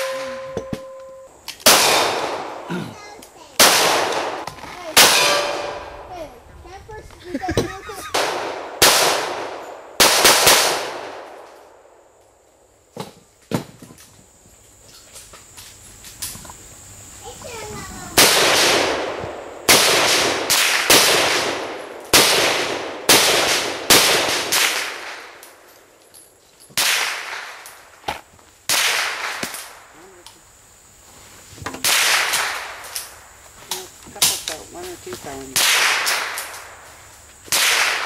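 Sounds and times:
rifle shots with echo: 1.6s - 2.7s, 3.6s - 6.1s, 8.1s - 11.9s, 18.2s - 25.6s, 31.8s - 33.0s, 35.6s - 36.8s, 37.5s - 38.0s.

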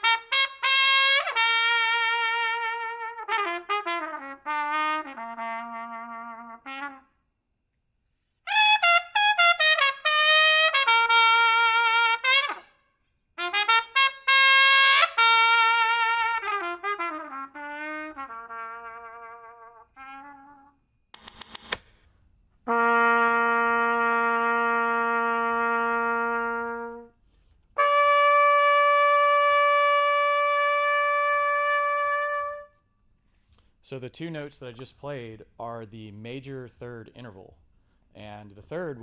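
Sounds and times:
solo trumpet melody: 0.0s - 7.1s, 8.5s - 12.8s, 13.4s - 20.8s, 22.7s - 27.2s, 27.8s - 32.8s.

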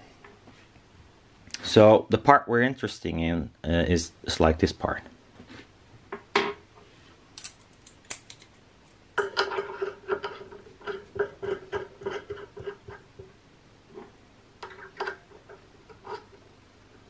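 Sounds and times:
metal nut clicking: 7.4s - 8.6s.

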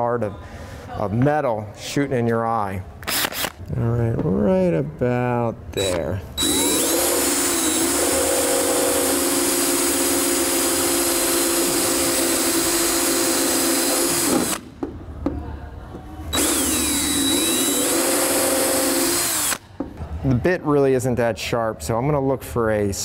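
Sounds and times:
power drill grinding on steel: 6.4s - 14.6s, 16.4s - 19.6s.

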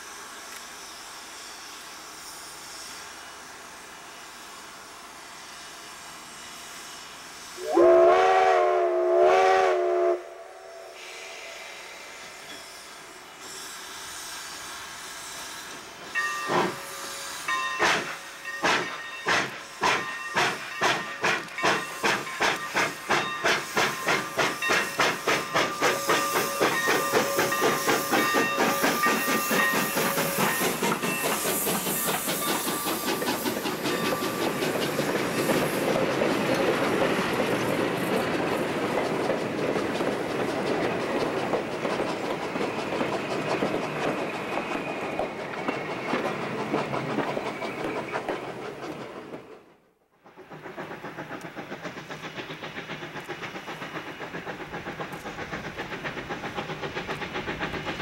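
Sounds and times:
steam locomotive exhaust chuffs: 0.0s - 58.0s
steam locomotive whistle: 7.6s - 13.1s, 23.5s - 31.4s.

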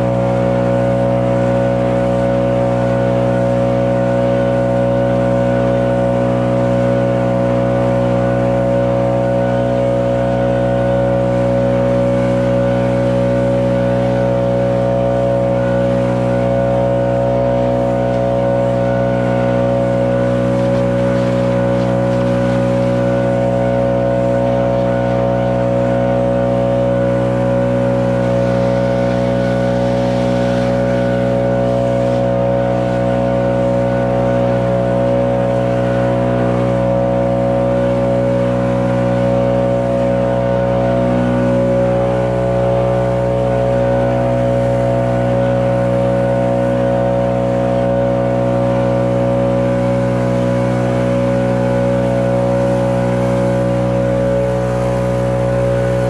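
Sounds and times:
leaf blower engine running: 0.0s - 56.0s.

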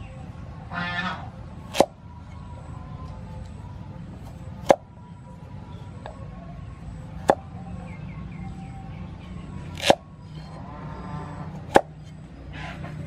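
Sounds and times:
blade crunching through carrot: 9.7s - 10.0s.

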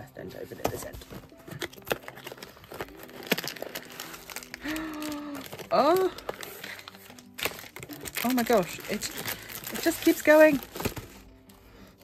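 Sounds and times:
paper and plastic wrap rustling: 0.2s - 11.4s
cardboard box being opened: 0.6s - 8.2s.

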